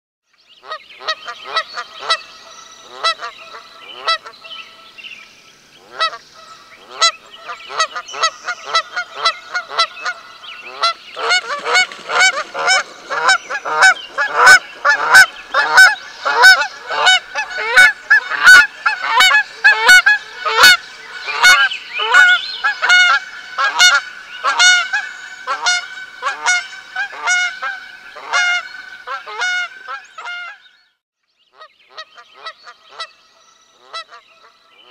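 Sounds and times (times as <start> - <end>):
geese honking: 0.6 - 4.9, 5.8 - 30.6, 33.8 - 34.2.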